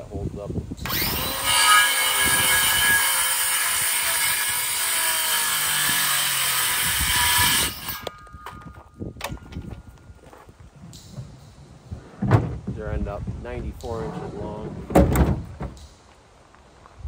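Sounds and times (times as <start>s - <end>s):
circular saw cutting wood: 0.8s - 8.2s.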